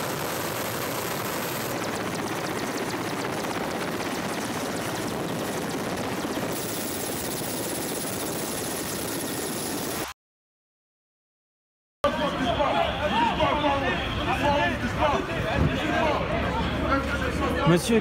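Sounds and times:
high turbine whine: 0.0s - 10.1s
helicopter rotors and turbine: 0.0s - 10.2s.

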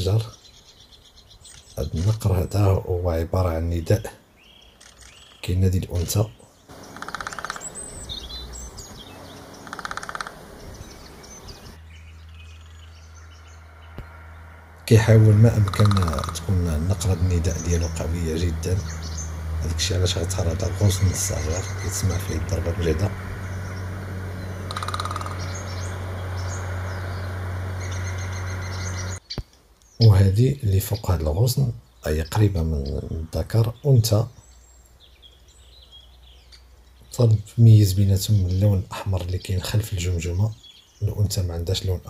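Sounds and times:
small birds chirping faintly: 0.0s - 42.0s
woodpecker drumming on wood: 4.7s - 11.8s, 15.0s - 29.2s
steady low hum: 6.7s - 29.2s.

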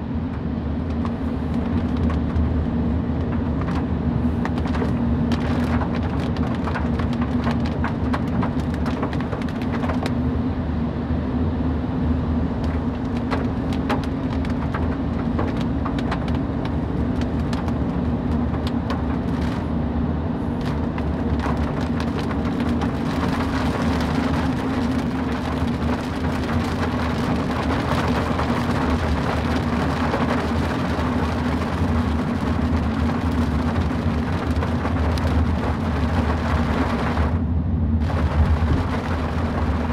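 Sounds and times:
car engine and road drone: 0.0s - 39.9s
raindrop ticks: 0.9s - 2.5s, 3.2s - 10.2s, 12.6s - 19.6s, 20.6s - 37.3s
rain hiss and tyre spray: 38.0s - 39.9s.

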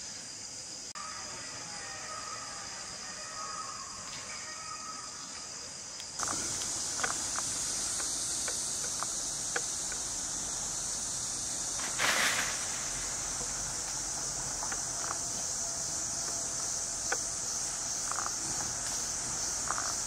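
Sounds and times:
insects chorus: 0.0s - 20.0s
faint clicks: 6.0s - 10.1s
short rustle: 11.6s - 14.6s.

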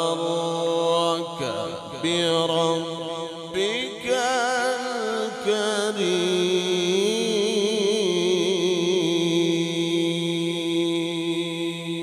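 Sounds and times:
man chanting melodically: 0.0s - 12.0s.

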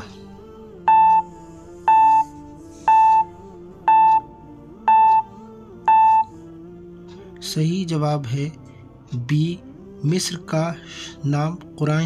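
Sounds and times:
soft background music: 0.0s - 12.0s
short electronic beeps: 0.9s - 1.3s, 1.9s - 2.3s, 2.9s - 3.3s, 3.9s - 4.3s, 4.9s - 5.3s, 5.9s - 6.3s.

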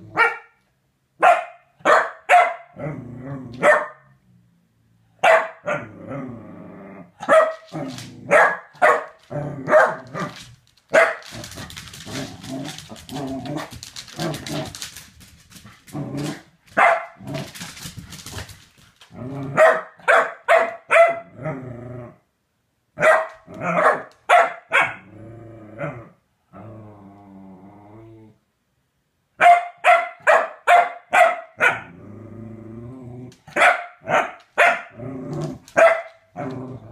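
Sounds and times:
dog barking sharply: 0.2s - 0.6s, 1.2s - 2.7s, 3.6s - 4.1s, 5.2s - 5.8s, 7.2s - 7.7s, 8.3s - 10.0s, 16.8s - 17.2s, 19.6s - 21.2s, 23.0s - 25.0s, 29.4s - 31.8s, 33.5s - 34.9s, 35.8s - 36.2s
dog growling: 2.8s - 3.6s, 5.8s - 8.4s, 11.3s - 14.9s, 15.8s - 16.5s, 19.1s - 19.6s, 21.2s - 22.2s, 25.0s - 28.4s, 31.8s - 33.5s, 34.9s - 35.8s, 36.4s - 36.9s.

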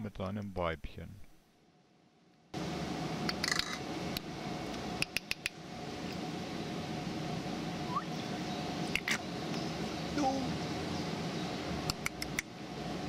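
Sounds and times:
sharp clicks: 5.0s - 5.6s, 11.9s - 12.5s
faint short upward chirp: 7.9s - 8.2s.

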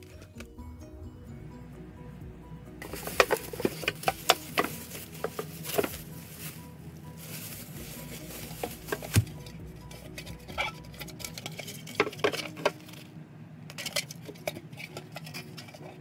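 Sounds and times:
quiet background music: 0.0s - 16.0s
plastic bag crinkling: 2.8s - 9.5s.

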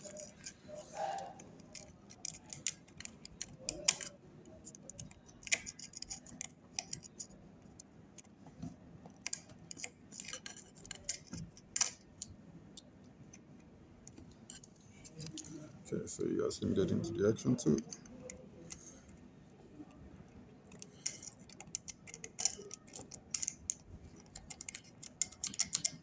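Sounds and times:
sharp metal clicks: 0.0s - 7.3s, 20.6s - 26.0s.

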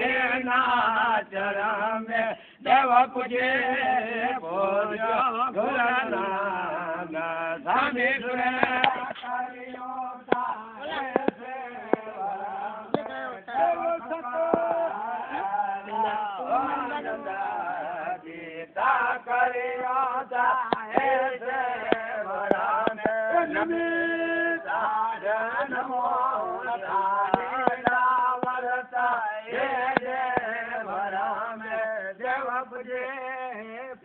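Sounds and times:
man chanting a devotional song: 0.0s - 34.0s.

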